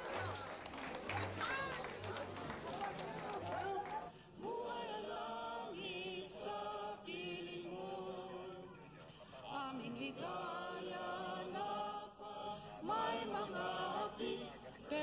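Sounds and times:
choir singing long notes: 0:02.4 - 0:08.7, 0:09.4 - 0:15.0.

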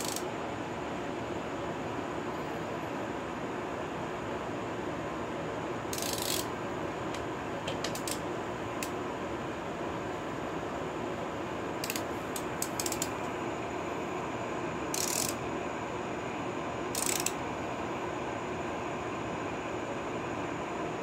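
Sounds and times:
ratchet rasping sweep: 0:00.0 - 0:00.3, 0:05.9 - 0:06.5, 0:11.8 - 0:13.1, 0:14.9 - 0:15.4, 0:16.9 - 0:17.4
ratchet wrench clicking: 0:00.0 - 0:00.3, 0:05.9 - 0:06.5, 0:11.8 - 0:13.2, 0:14.9 - 0:15.4, 0:16.9 - 0:17.4.

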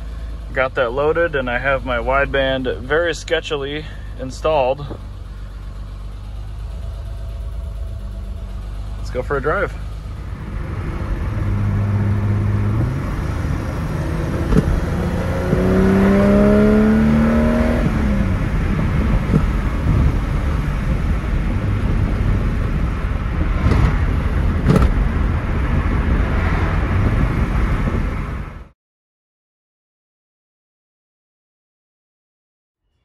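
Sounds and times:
car engine accelerating: 0:00.0 - 0:28.7
road and wind noise: 0:00.0 - 0:28.8.

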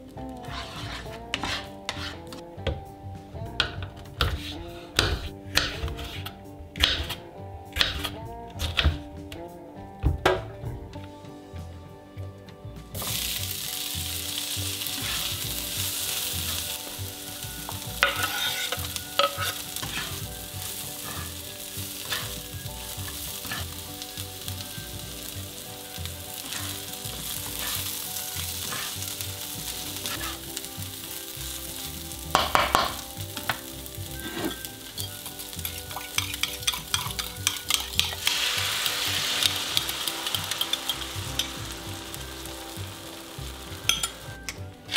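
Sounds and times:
spatula scraping and knocking pan: 0:00.3 - 0:02.8, 0:03.5 - 0:09.1, 0:13.0 - 0:44.9
bread sizzling in hot oil: 0:13.0 - 0:44.5.

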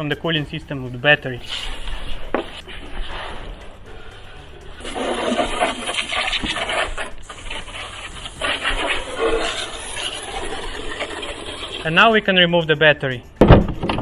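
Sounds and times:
hose nozzle spraying water: 0:01.4 - 0:03.6, 0:04.8 - 0:12.3.

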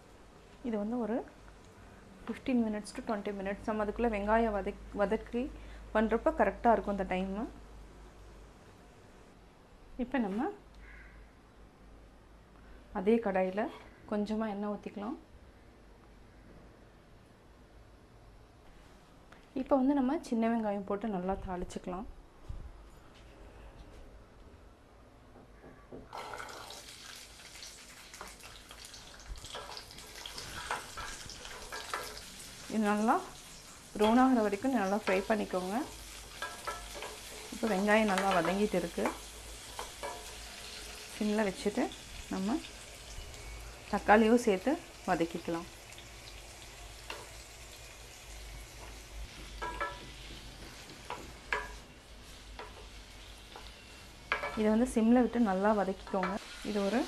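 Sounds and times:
shallots sizzling in hot oil: 0:26.1 - 0:57.0
spatula knocking against a pan: 0:49.3 - 0:51.8.

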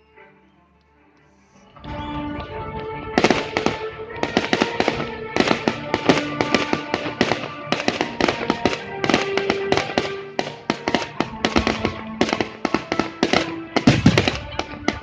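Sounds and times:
music with held notes: 0:00.0 - 0:15.0
fireworks bangs and crackles: 0:03.0 - 0:15.0.

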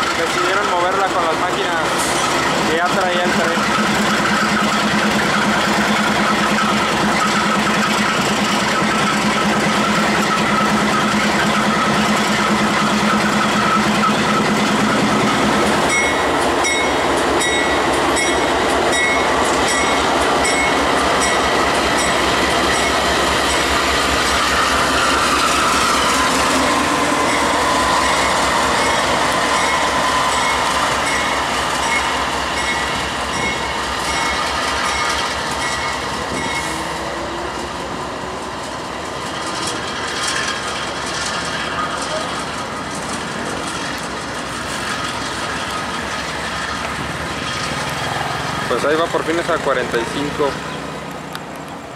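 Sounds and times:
locomotive engine drone: 0:00.0 - 0:51.9
wheels clicking over rail joints: 0:39.2 - 0:51.9.

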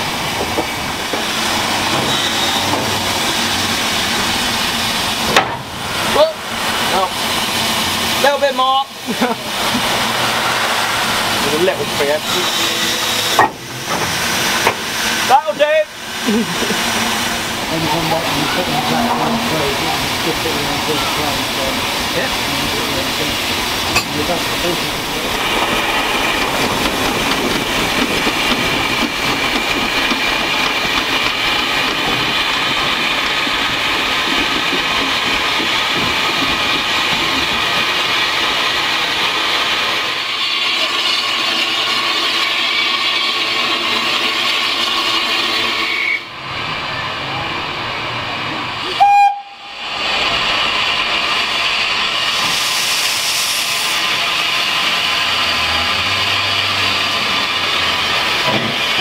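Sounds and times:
steam hissing: 0:00.0 - 0:59.0
locomotive whistle toot: 0:45.8 - 0:46.3, 0:48.9 - 0:49.8.

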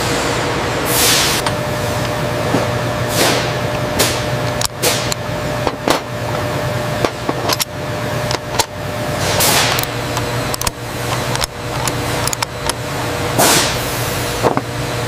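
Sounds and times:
factory machinery hum: 0:00.0 - 0:15.0
clicks of small metal parts: 0:07.3 - 0:07.7, 0:10.5 - 0:12.8.

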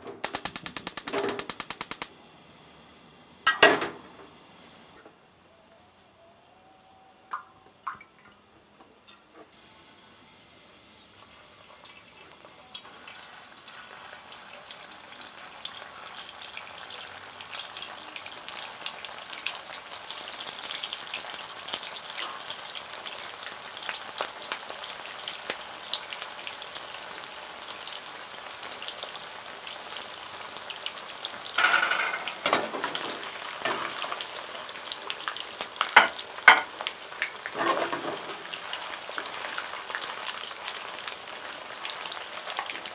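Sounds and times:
food sizzling in hot oil: 0:00.2 - 0:05.0, 0:09.6 - 0:42.9.

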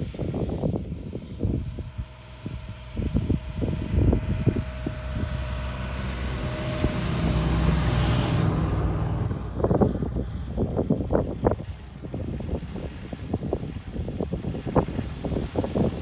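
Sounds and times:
wind buffeting microphone: 0:00.0 - 0:16.0
tracked pickup truck driving past: 0:02.2 - 0:12.0.

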